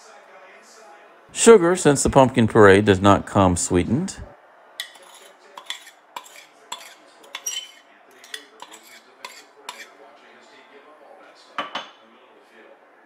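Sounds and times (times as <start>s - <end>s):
utensils and dishes clinking: 4.8s - 10.0s.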